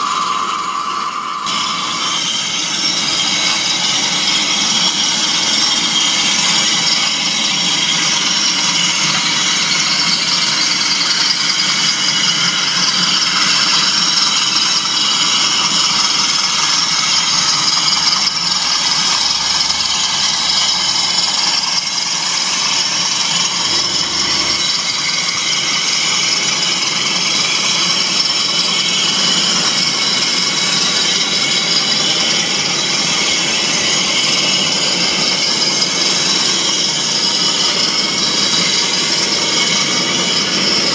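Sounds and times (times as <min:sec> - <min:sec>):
model train whirring and rattling: 0:00.0 - 0:40.9.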